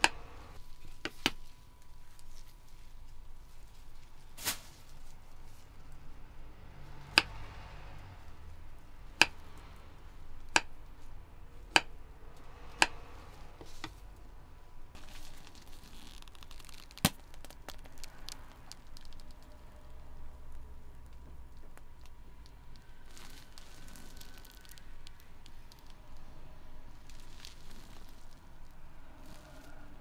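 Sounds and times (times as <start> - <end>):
faint crinkly ticks: 17.6 - 29.8.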